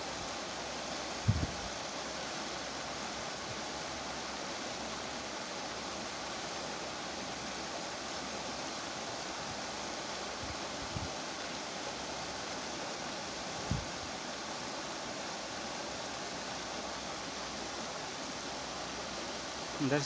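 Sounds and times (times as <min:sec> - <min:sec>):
river water rushing over weir: 0:00.0 - 0:20.0
low thump: 0:01.2 - 0:01.6.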